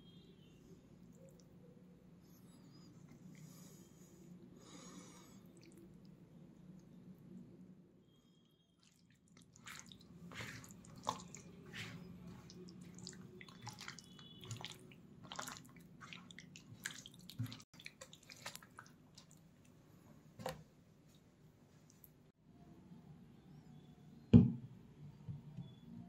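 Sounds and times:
wet squelches of kneading meat: 0:08.8 - 0:19.8.

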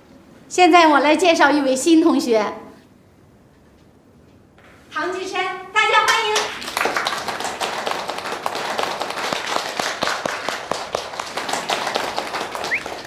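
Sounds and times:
students clapping: 0:06.1 - 0:13.0.

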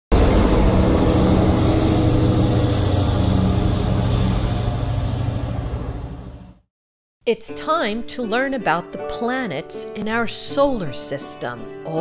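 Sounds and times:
propeller airplane engine drone: 0:00.1 - 0:06.7.

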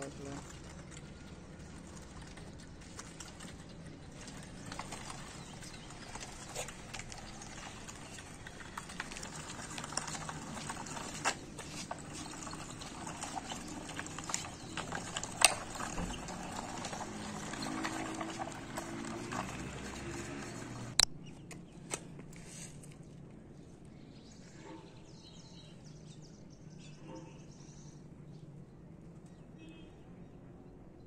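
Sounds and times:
wooden wheels rolling on concrete: 0:00.0 - 0:21.6.

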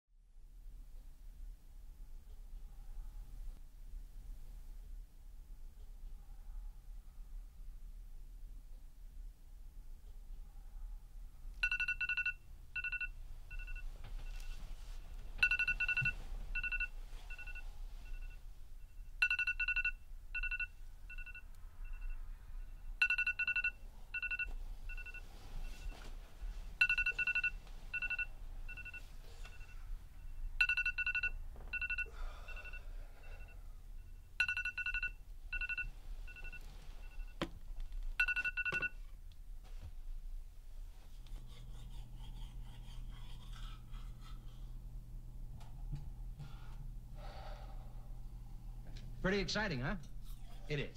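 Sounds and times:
smartphone alarm beeping: 0:11.6 - 0:14.6, 0:15.4 - 0:26.1, 0:26.8 - 0:37.5, 0:38.2 - 0:39.1.

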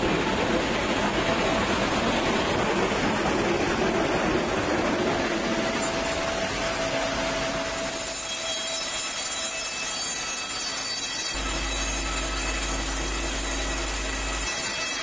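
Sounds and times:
industrial machinery noise: 0:04.2 - 0:15.0.

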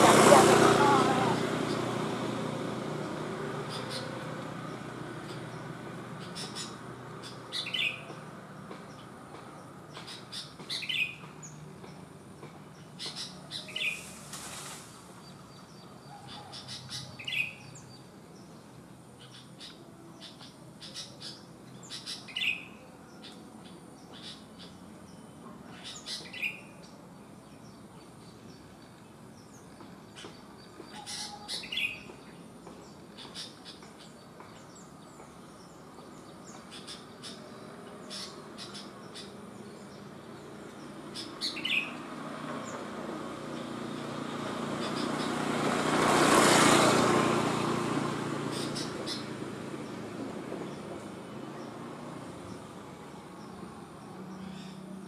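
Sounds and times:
brief rustle: 0:14.0 - 0:15.0.

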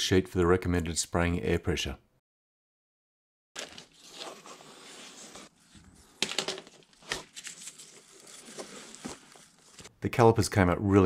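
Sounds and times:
gloved hands rustling: 0:03.6 - 0:09.9.

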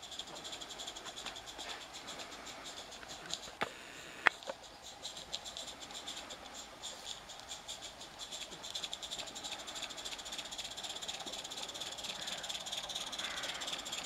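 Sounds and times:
steam locomotive exhaust beats: 0:04.7 - 0:14.0.

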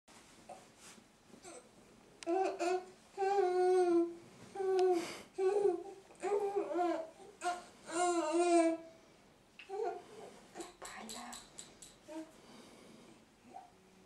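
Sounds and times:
baby babbling: 0:02.3 - 0:08.8, 0:09.7 - 0:10.0.

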